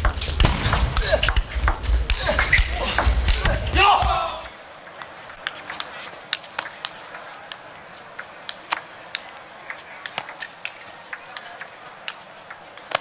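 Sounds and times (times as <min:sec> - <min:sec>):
ping pong ball clicking: 0:11.1 - 0:13.0.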